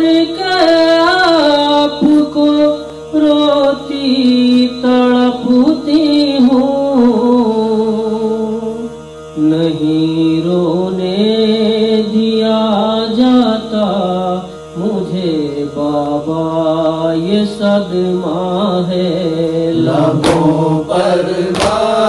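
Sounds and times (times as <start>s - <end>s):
man singing lament: 0.0s - 22.0s
steady background drone: 0.0s - 22.0s.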